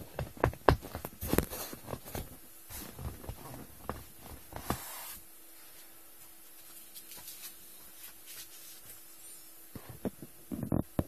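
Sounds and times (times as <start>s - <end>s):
hand rubbing taut vinyl: 0.0s - 5.9s, 6.9s - 9.1s.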